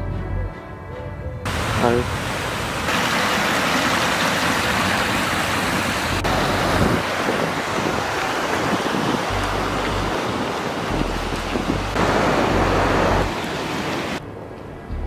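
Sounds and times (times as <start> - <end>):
stream rushing over rocks: 1.5 - 14.2
wind buffeting microphone: 6.0 - 15.0.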